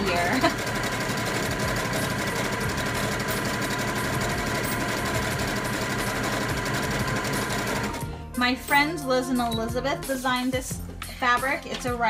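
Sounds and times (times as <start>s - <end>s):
sewing machine stitching: 0.0s - 8.0s.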